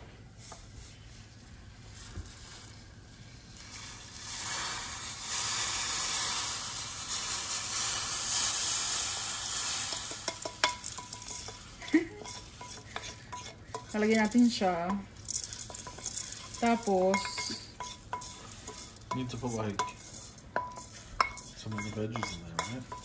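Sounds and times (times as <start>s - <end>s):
loud sizzling hiss: 1.6s - 23.0s
rice pouring into liquid: 1.7s - 11.5s
wooden spoon knocking metal pans: 9.9s - 23.0s.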